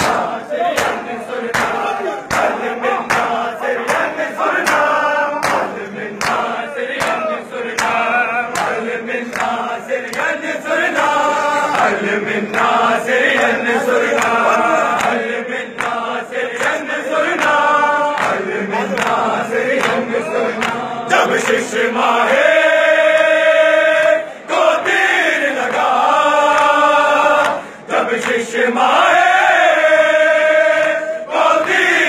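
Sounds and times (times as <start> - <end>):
chest slaps: 0.0 - 9.5
men chanting in unison: 0.0 - 32.0.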